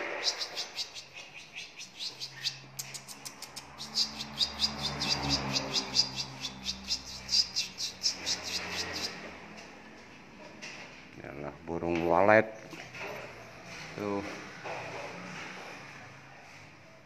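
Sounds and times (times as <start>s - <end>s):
swiftlets chirping: 0.0s - 9.1s.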